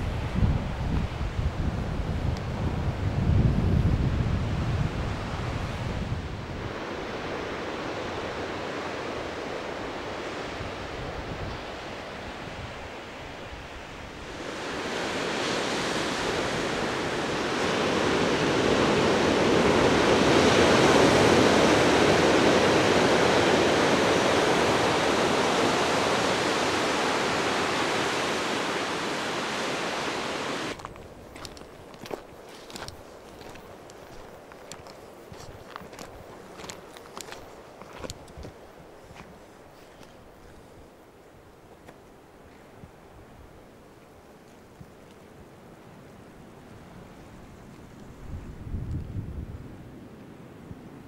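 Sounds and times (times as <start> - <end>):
wind buffeting microphone: 0.0 - 27.8, 30.7 - 41.0, 46.8 - 50.1
waves breaking on rocks: 14.2 - 39.3.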